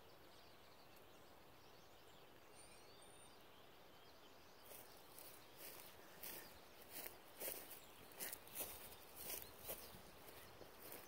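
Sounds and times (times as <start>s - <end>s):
distant bird chirps: 0.0s - 11.0s
soft scuffing: 4.7s - 11.0s.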